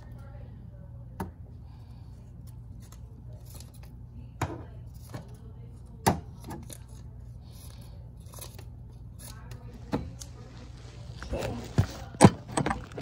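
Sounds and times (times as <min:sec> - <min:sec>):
scissors snipping paper: 0:06.4 - 0:10.3.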